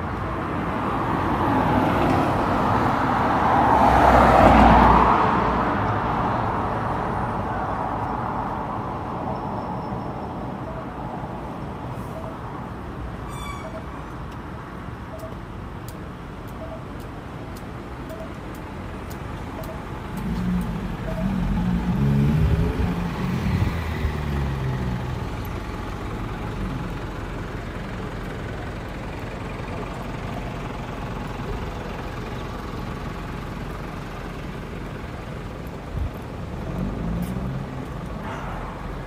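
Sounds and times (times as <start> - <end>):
street traffic: 0.0 - 39.0
faint short beep: 13.3 - 14.0
vehicle engine passing close: 20.0 - 39.0.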